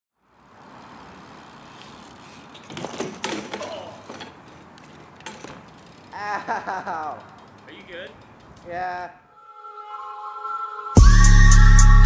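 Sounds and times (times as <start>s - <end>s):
steady outdoor hiss: 0.2s - 9.3s
bike crashing on concrete: 0.6s - 7.6s.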